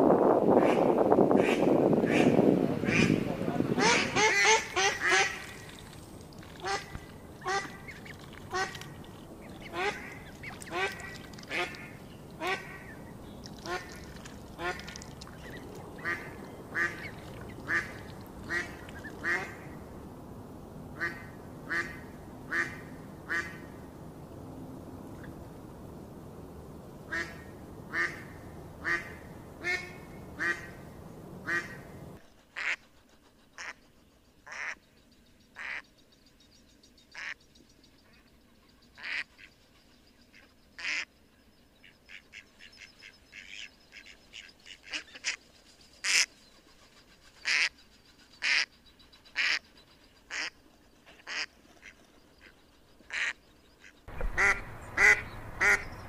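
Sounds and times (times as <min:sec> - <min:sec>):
ducks quacking: 0:00.6 - 0:05.8, 0:06.4 - 0:13.0, 0:13.6 - 0:19.7, 0:50.3 - 0:52.0, 0:53.1 - 0:56.0.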